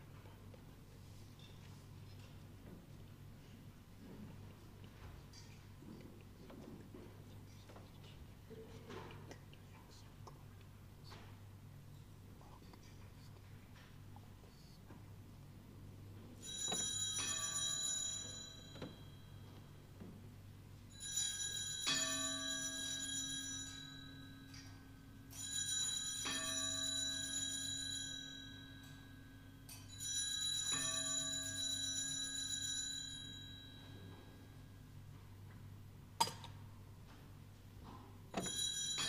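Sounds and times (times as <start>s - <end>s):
altar bells ringing: 16.4s - 19.5s, 20.9s - 34.8s, 38.4s - 39.0s.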